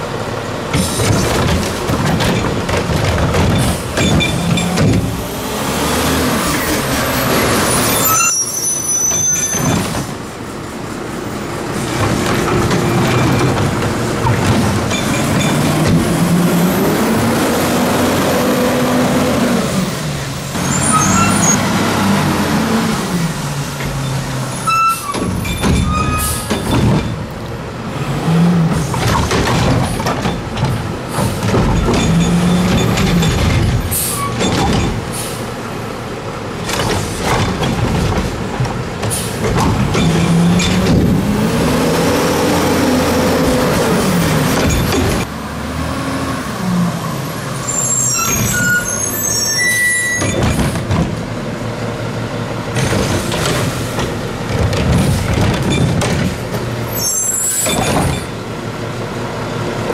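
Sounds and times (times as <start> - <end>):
garbage truck engine revving: 0.1 - 10.4, 11.0 - 59.9
clanks and knocks: 0.7 - 5.2, 11.9 - 16.2, 25.1 - 27.3, 28.7 - 35.1, 36.6 - 41.4, 50.2 - 51.3, 52.7 - 56.7, 57.6 - 58.3.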